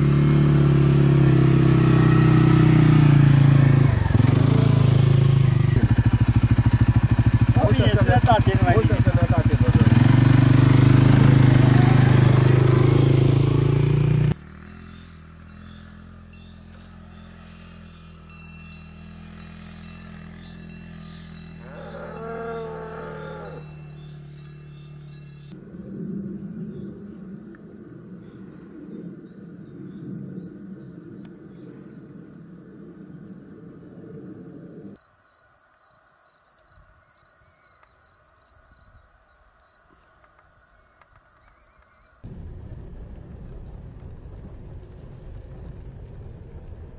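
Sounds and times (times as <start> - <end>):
quad bike engine running: 0.0 - 25.6
crickets trilling: 4.1 - 10.4, 14.3 - 42.3.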